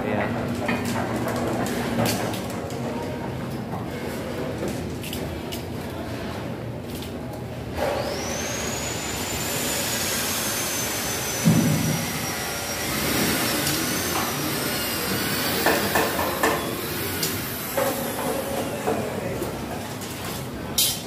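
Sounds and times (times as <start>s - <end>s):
small motor whining: 7.8s - 18.9s.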